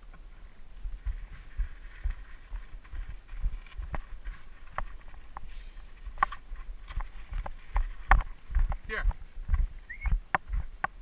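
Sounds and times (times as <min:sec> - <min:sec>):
sharp clicks and knocks: 0:06.2 - 0:08.9.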